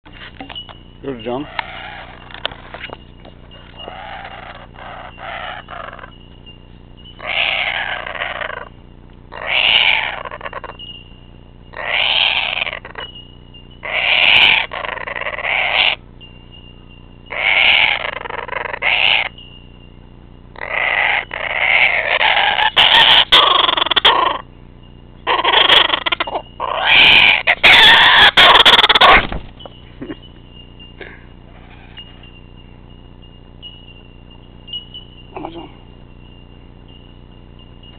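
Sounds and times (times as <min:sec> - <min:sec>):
faint steady high tone: 0:00.1 - 0:09.3, 0:10.0 - 0:22.6, 0:23.8 - 0:26.7, 0:28.4 - 0:37.9
kookaburra calling: 0:00.7 - 0:06.2, 0:07.1 - 0:11.0, 0:11.7 - 0:13.2, 0:13.8 - 0:16.0, 0:17.2 - 0:19.5, 0:20.5 - 0:24.6, 0:25.2 - 0:32.7.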